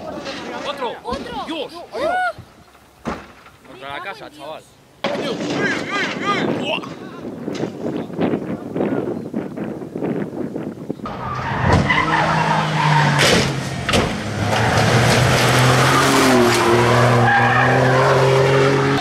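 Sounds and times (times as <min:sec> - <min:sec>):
car knocking against guardrail: 0:13.2 - 0:15.2.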